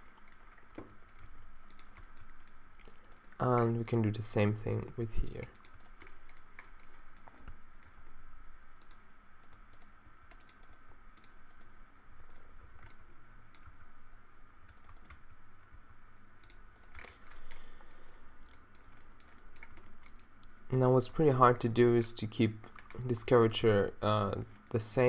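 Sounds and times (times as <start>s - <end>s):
keyboard and mouse clicks: 0.0s - 4.1s, 5.4s - 8.2s, 8.8s - 13.9s, 14.6s - 15.8s, 16.4s - 21.1s, 21.7s - 23.4s
faint steady hum: 0.0s - 25.0s.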